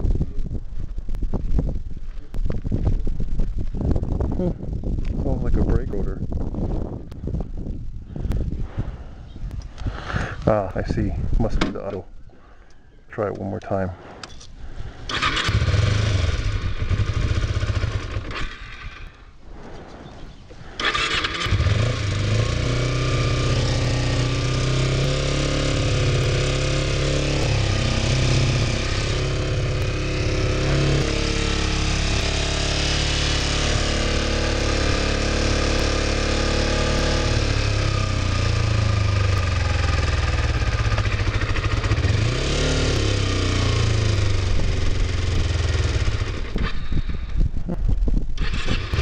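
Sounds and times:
motorcycle engine starting and revving: 0:14.3 - 0:19.4, 0:20.6 - 0:49.0.

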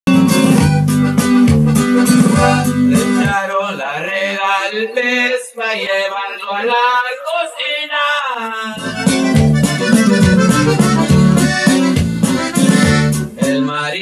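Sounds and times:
accordion: 0:00.1 - 0:03.4, 0:08.8 - 0:14.0
bass line: 0:00.1 - 0:03.4, 0:08.8 - 0:13.7
plucked guitar: 0:00.1 - 0:03.4, 0:08.8 - 0:14.0.

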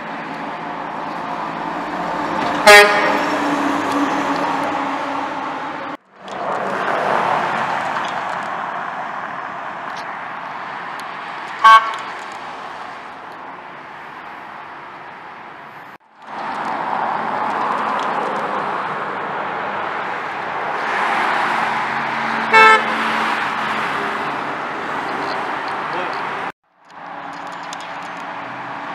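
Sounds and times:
street traffic passing: 0:00.0 - 0:28.9
short horn toots: 0:02.6 - 0:03.2.

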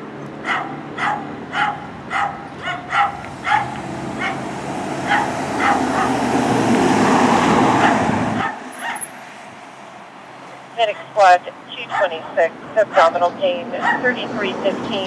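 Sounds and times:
van driving past: 0:00.0 - 0:11.7
dog barking: 0:00.4 - 0:06.3, 0:07.8 - 0:09.1, 0:11.8 - 0:12.2, 0:13.8 - 0:14.2.

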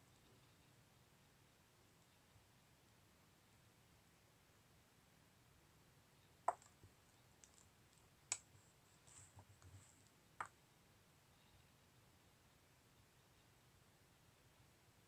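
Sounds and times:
faint rustle: 0:06.6 - 0:10.5
soft ticks: 0:07.4 - 0:10.5.

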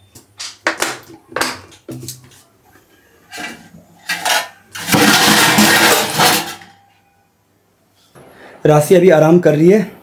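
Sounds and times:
steel dishes clattering in sink: 0:03.3 - 0:06.8.

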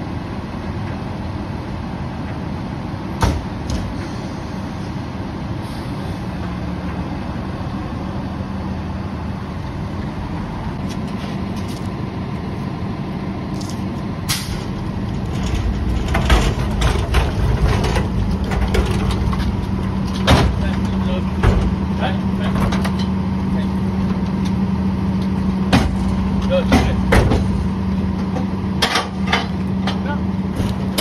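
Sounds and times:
diesel engine idling: 0:00.0 - 0:31.0
metal bin clanks: 0:14.3 - 0:21.8.

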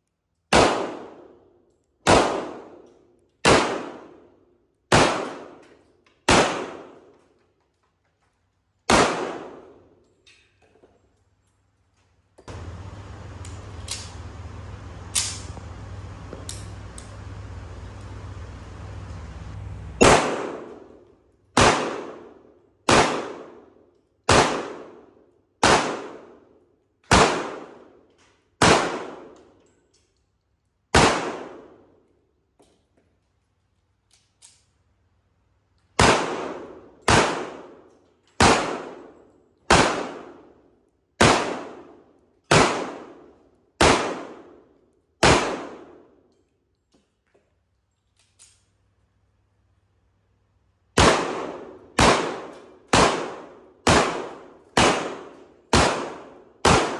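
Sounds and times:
pistol shots: 0:00.5 - 0:07.1, 0:08.9 - 0:10.0, 0:12.5 - 0:18.4, 0:20.0 - 0:23.7, 0:24.3 - 0:26.4, 0:27.1 - 0:28.0, 0:28.6 - 0:29.4, 0:30.9 - 0:31.8, 0:36.0 - 0:40.6, 0:41.2 - 0:46.2, 0:50.9 - 0:56.9
faint reloading clicks: 0:12.4 - 0:18.5.

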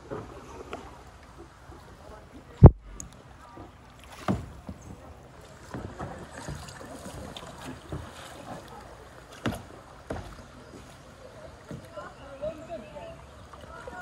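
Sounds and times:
water moving around kayaks: 0:00.0 - 0:14.0.

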